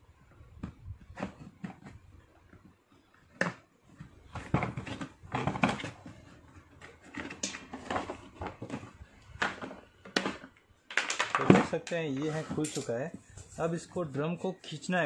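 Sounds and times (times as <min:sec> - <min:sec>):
plastic clips clicking and creaking: 0:09.4 - 0:12.0.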